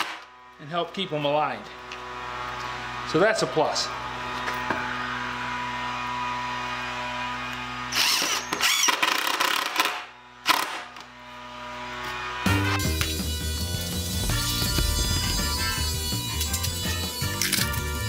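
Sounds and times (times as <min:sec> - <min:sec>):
impact driver driving screws: 0:07.9 - 0:10.8.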